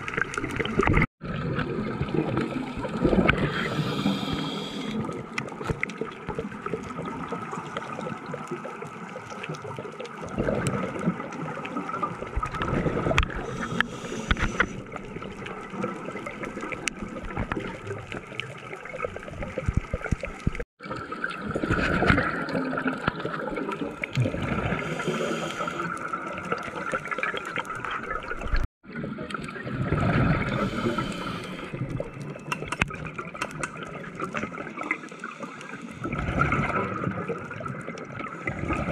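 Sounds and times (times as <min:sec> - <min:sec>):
scuba bubbles gurgling: 0:00.0 - 0:38.9
small underwater clicks: 0:02.8 - 0:20.6, 0:21.5 - 0:38.8
underwater hiss: 0:03.2 - 0:05.2, 0:13.4 - 0:14.8, 0:24.5 - 0:26.1, 0:30.1 - 0:31.9.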